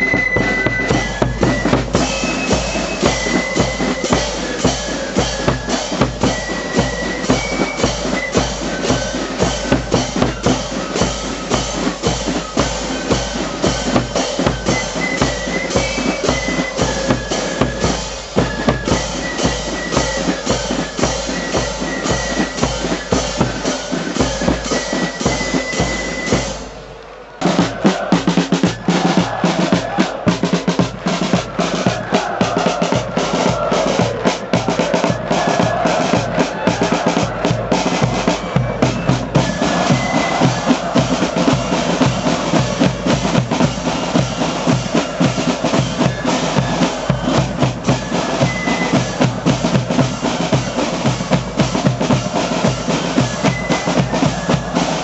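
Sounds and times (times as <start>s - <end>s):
cymbals clashing: 0.0s - 36.2s
flute melody: 0.0s - 55.0s
snare drums: 0.0s - 55.0s.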